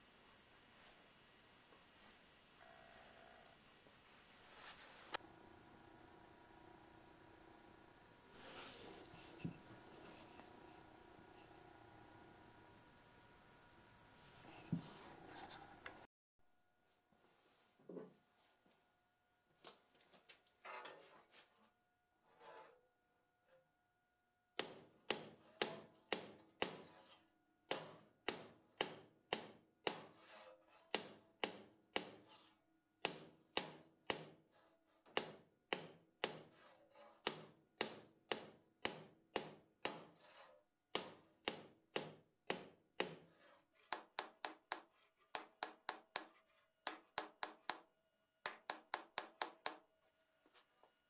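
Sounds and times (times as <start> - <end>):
hammer striking saw blade: 24.6 - 30.2, 30.9 - 32.4, 33.0 - 34.4, 35.0 - 36.7, 37.3 - 46.3.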